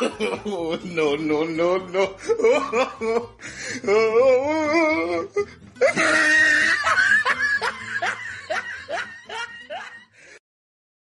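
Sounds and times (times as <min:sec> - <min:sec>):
comic laughter effect: 0:00.0 - 0:00.8, 0:02.2 - 0:04.1, 0:05.8 - 0:10.1.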